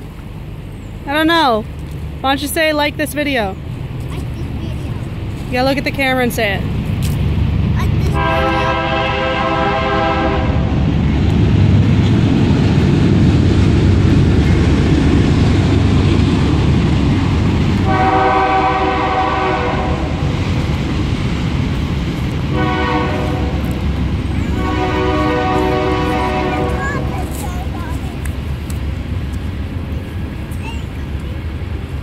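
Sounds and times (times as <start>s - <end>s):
train running rumble: 0.0s - 32.0s
train horn blasts: 8.2s - 10.7s, 17.8s - 20.3s, 22.5s - 23.8s, 24.4s - 27.0s.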